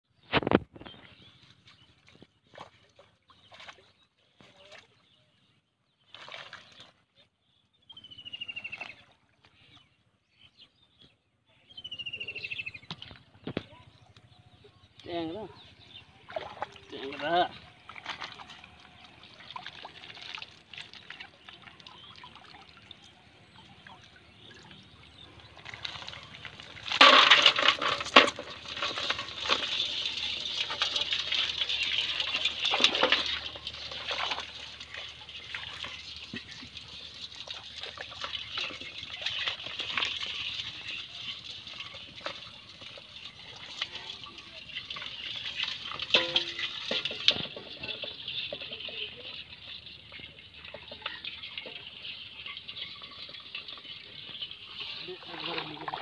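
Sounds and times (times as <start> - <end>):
water splashing and pouring: 6.0 - 7.0, 15.1 - 56.0.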